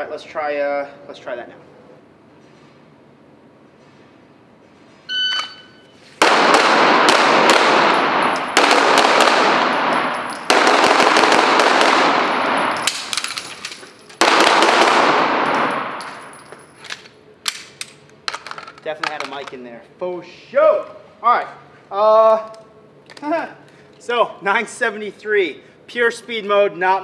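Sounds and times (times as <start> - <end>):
shot timer beep: 5.1 - 6.0
pistol shots echoing indoors: 6.2 - 16.4.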